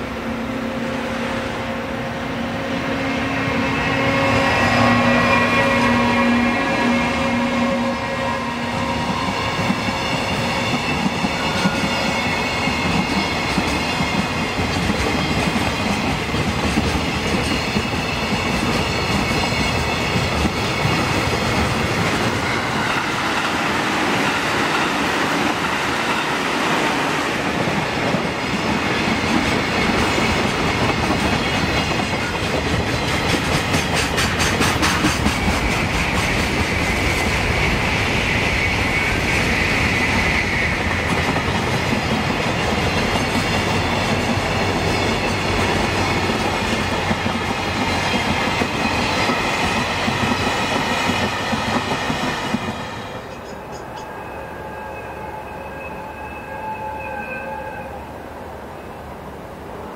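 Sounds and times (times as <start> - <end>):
passenger train passing: 0.0 - 59.9
freight train wheels clattering: 8.6 - 26.6, 27.3 - 37.8.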